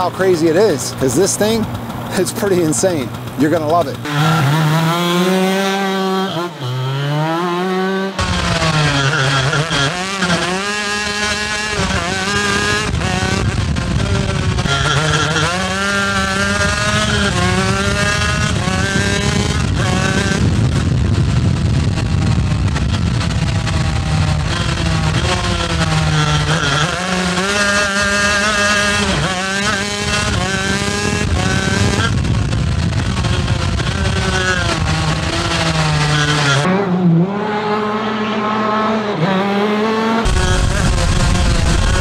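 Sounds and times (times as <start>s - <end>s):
kart engine revving: 0.0s - 42.0s.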